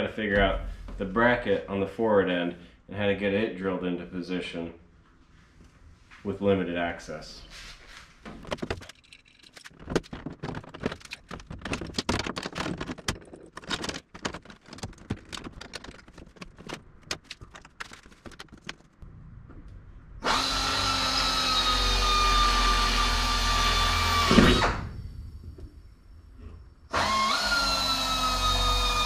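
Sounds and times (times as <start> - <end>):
metal parts clicking and clattering: 8.4 - 19.0
power drill running: 20.2 - 24.8, 26.9 - 29.0.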